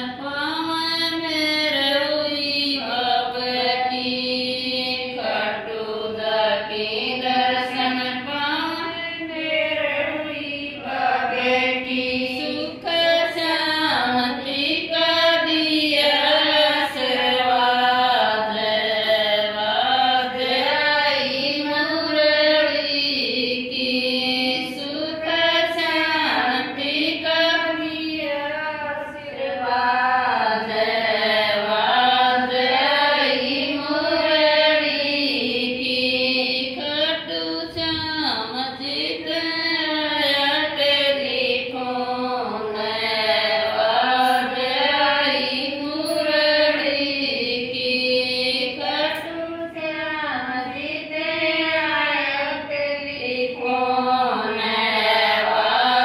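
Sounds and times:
women singing devotional song: 0.0 - 56.0.

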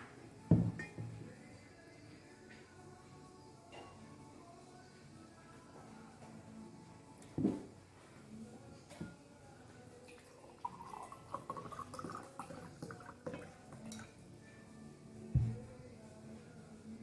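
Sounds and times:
water glugging into glass: 10.5 - 14.1
heavy thump: 15.4 - 15.7.

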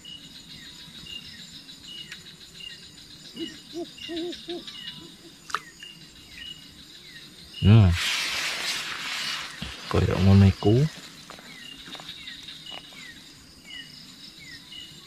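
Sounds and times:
night insects chirping: 0.0 - 15.0
low hooting calls: 3.2 - 5.6
rustling noise: 7.8 - 13.0.

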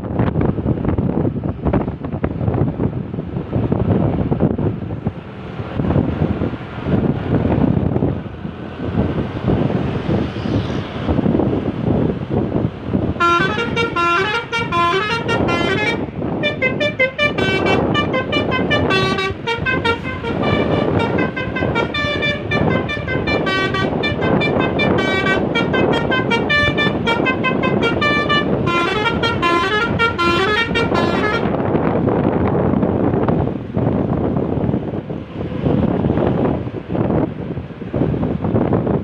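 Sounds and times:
bus engine and road noise: 0.0 - 39.0
bus horn playing a melodic tune: 13.1 - 31.7.

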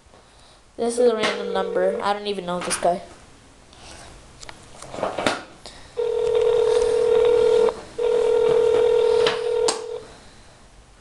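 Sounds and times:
telephone ringback tone: 1.3 - 2.1, 6.0 - 10.1.

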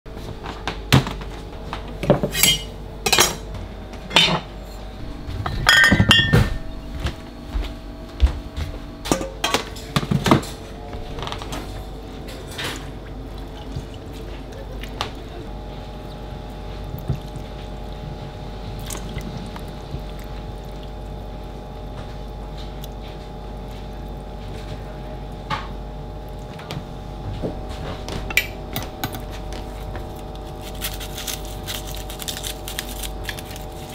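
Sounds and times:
steady background hum: 0.1 - 33.9
metal bowls and utensils clanking: 2.0 - 4.8, 5.4 - 6.7, 9.1 - 15.5, 27.9 - 29.5.

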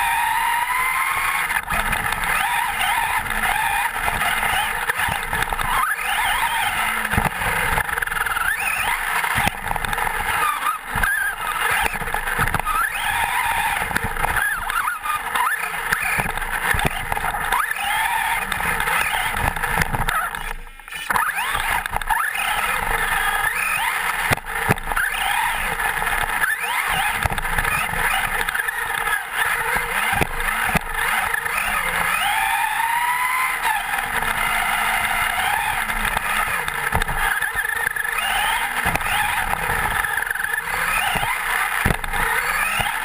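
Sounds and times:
electric motor whining: 0.0 - 43.0
tyres on dirt: 0.0 - 43.0.

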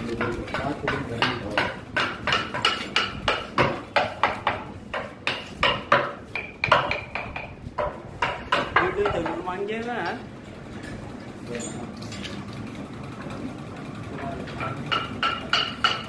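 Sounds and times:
hammer striking metal tool: 0.0 - 9.4, 14.6 - 16.0.

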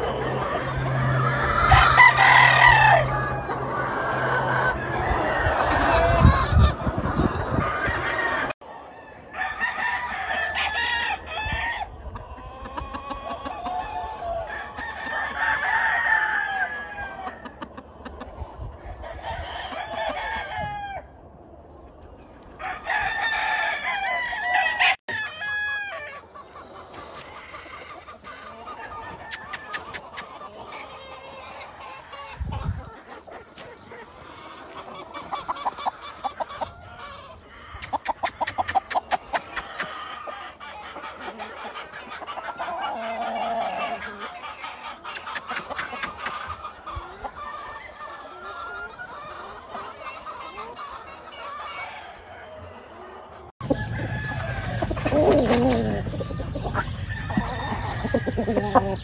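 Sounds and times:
roosters crowing: 0.0 - 21.4, 22.4 - 33.0, 33.6 - 49.9, 51.4 - 59.0
clucking and short calls: 26.1 - 59.0.

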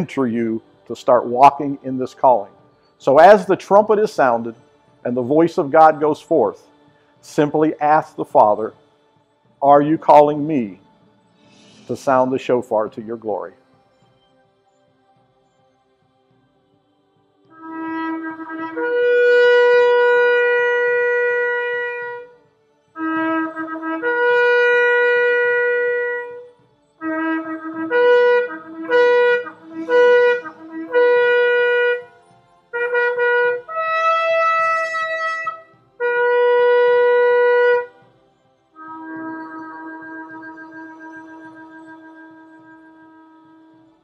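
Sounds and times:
shofar horn blasts: 0.0 - 8.8, 9.6 - 10.8, 11.6 - 13.6, 17.5 - 22.4, 23.0 - 38.0, 38.7 - 44.0.

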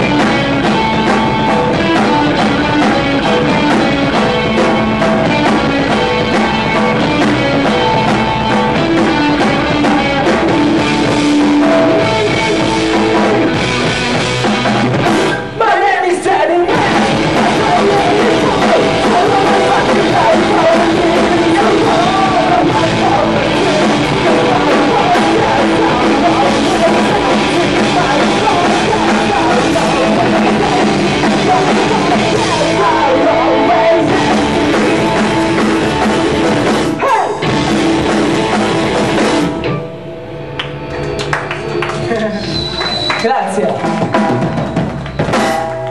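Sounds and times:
punk rock band playing: 0.0 - 45.9
man singing: 15.5 - 35.6.

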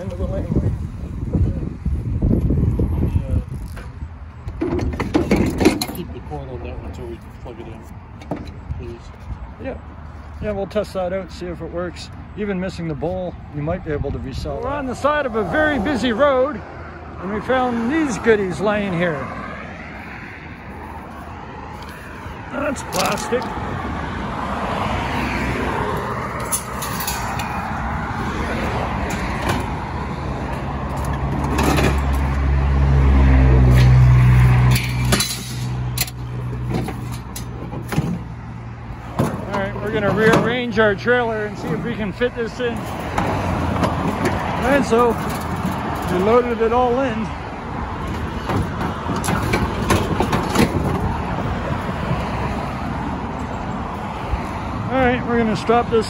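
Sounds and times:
road traffic going by: 0.0 - 56.0
scrap metal knocks and clanks: 4.5 - 6.2, 33.6 - 38.4, 42.8 - 46.5, 48.0 - 51.2
large vehicle engine drone: 14.9 - 56.0.

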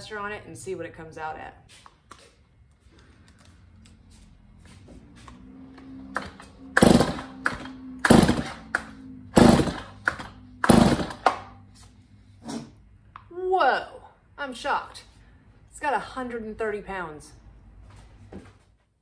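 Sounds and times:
chainsaw recoil starter pulls: 6.2 - 8.6, 9.4 - 11.3.

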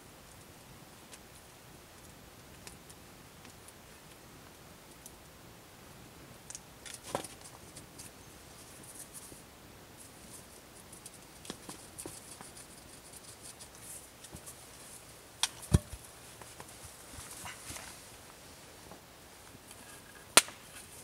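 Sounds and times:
wooden pole rustling and scraping: 6.8 - 9.4, 10.0 - 21.0
wooden pole knocks and thump: 15.6 - 16.0.

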